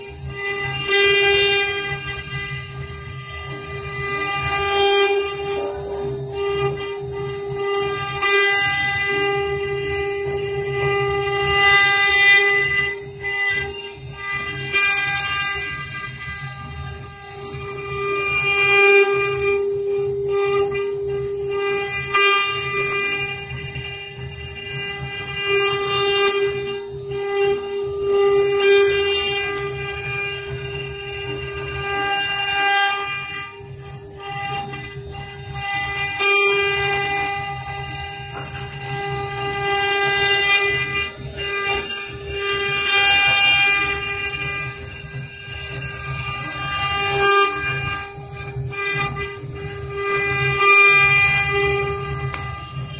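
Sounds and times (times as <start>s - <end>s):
router spindles whining: 0.0s - 52.9s
hissing rasp of wood cutting: 4.4s - 8.3s.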